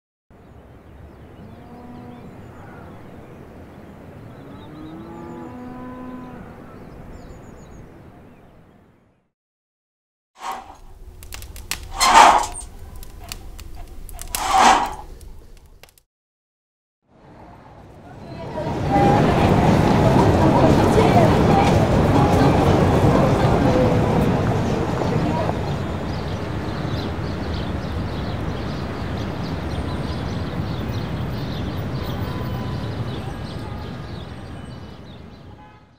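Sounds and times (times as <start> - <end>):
fire crackling: 10.4 - 16.0.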